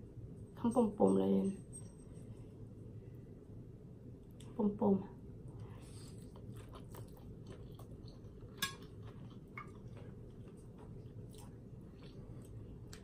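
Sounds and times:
low hum: 0.0s - 13.0s
person chewing noodles: 5.6s - 13.0s
chopsticks and spoon clicking: 8.6s - 8.9s.

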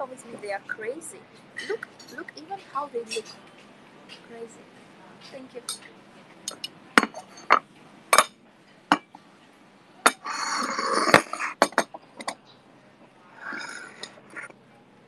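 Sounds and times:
cup and saucer clinking: 5.6s - 5.9s, 6.5s - 9.1s, 10.0s - 12.4s
cup sliding and scraping: 10.1s - 11.8s.

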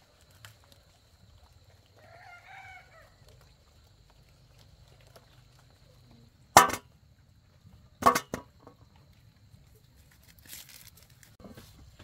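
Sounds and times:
dry leaves rustling: 10.0s - 11.4s.

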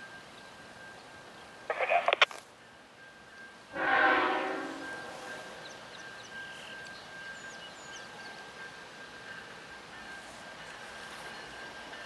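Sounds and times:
train horn blast: 3.7s - 5.6s.

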